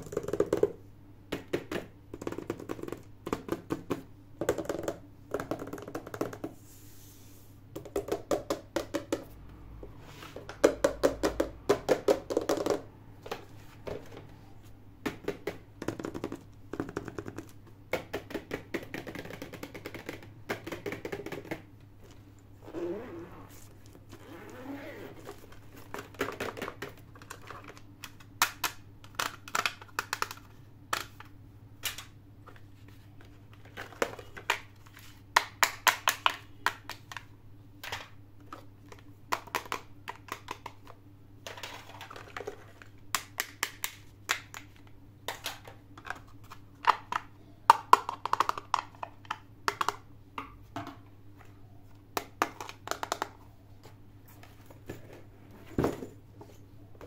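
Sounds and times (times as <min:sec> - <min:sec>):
faint steady hum: 0:00.0 - 0:57.0
plastic toys clicking and tapping: 0:15.1 - 0:21.6, 0:25.5 - 0:32.1, 0:33.6 - 0:50.5, 0:52.2 - 0:53.4.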